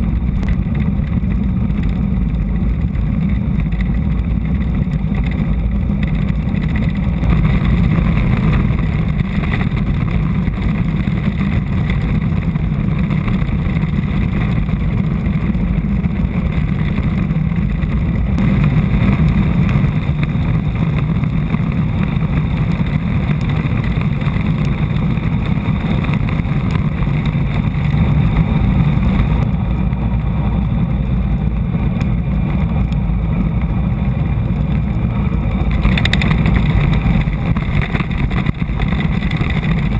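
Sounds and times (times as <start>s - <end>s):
wheels rumbling on hard ground: 0.0s - 39.9s
wind buffeting microphone: 0.0s - 39.9s.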